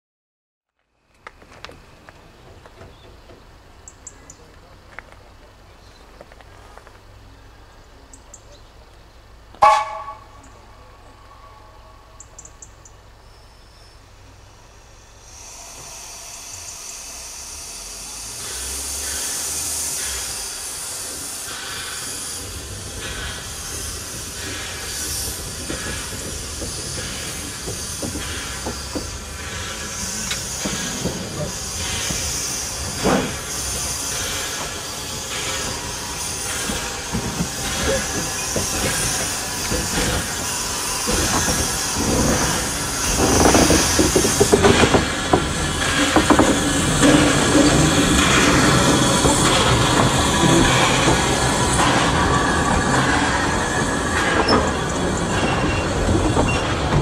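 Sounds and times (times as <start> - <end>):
steam locomotive hissing: 1.5 - 57.0
loud ringing clank: 9.6 - 12.7
scattered knocks: 36.6 - 52.2.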